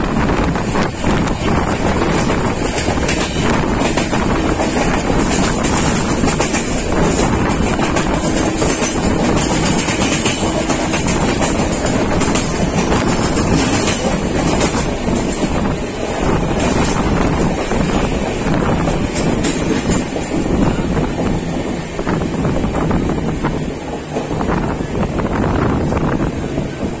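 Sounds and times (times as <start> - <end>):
rushing wind: 0.0 - 27.0
train wheels rumbling on rails: 0.0 - 27.0
wheels clicking over track: 0.4 - 21.8.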